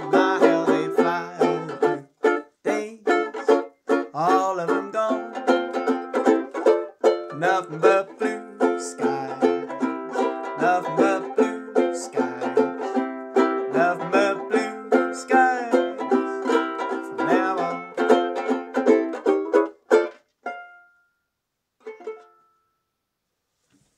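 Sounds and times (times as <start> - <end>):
banjo ukulele strumming: 0.0 - 21.1, 21.8 - 22.8.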